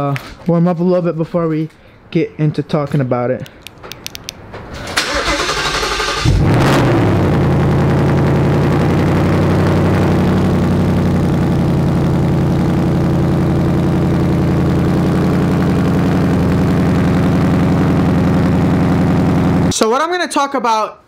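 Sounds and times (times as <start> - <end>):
car engine idling: 5.1 - 19.7.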